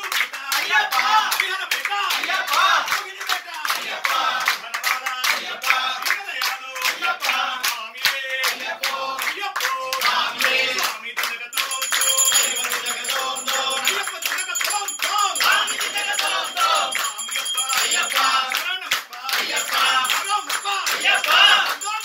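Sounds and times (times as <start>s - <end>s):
rhythmic hand clapping: 0.0s - 22.0s
group singing devotional song: 0.2s - 22.0s
high ringing: 11.6s - 18.6s, 19.5s - 22.0s.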